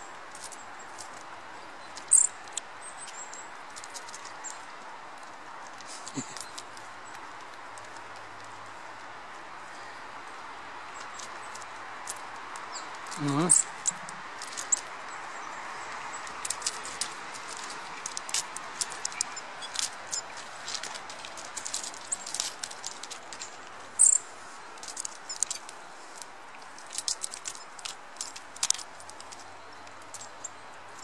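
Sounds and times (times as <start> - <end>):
squirrel claws scratching bark: 0.0 - 31.0.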